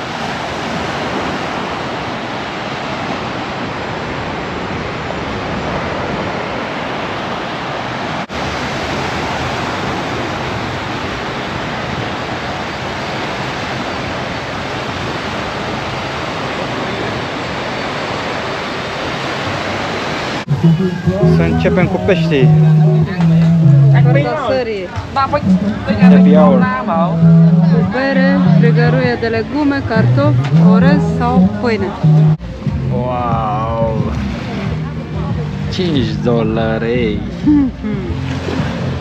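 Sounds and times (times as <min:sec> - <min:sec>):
small waves washing onto sand: 0:00.0 - 0:20.5.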